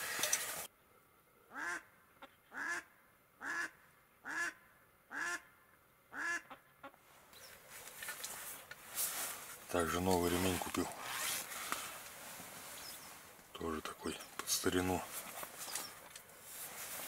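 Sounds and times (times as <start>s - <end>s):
duck quacking: 1.5s - 5.5s, 6.1s - 7.0s.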